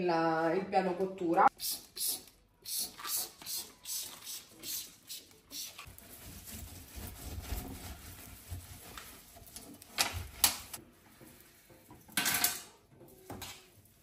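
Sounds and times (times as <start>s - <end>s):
sponge cloth rubbing steel sink: 3.0s - 11.7s.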